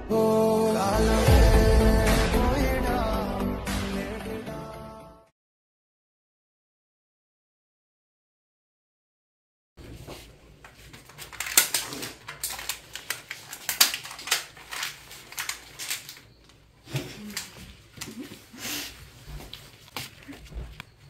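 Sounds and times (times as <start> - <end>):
paper and plastic bag crinkling: 10.0 - 20.8.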